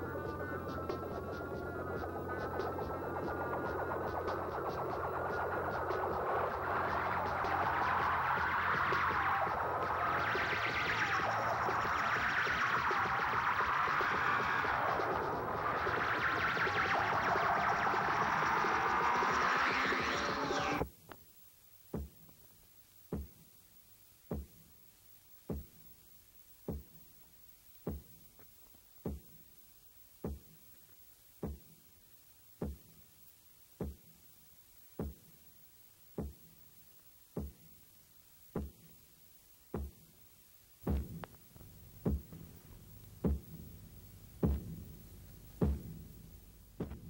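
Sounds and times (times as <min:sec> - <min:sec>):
low thumps: 0:37.4 - 0:37.8, 0:38.6 - 0:39.0, 0:39.7 - 0:40.1, 0:40.8 - 0:47.0.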